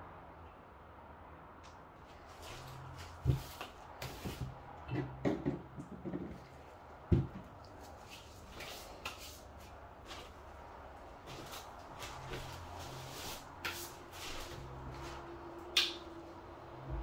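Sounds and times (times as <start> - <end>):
objects knocking and clunking: 3.2 - 7.6
low hum: 9.7 - 17.0.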